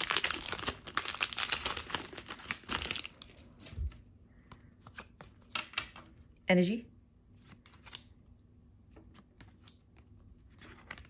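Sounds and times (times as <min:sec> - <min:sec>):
foil wrapper crinkling and tearing: 0:00.0 - 0:03.7.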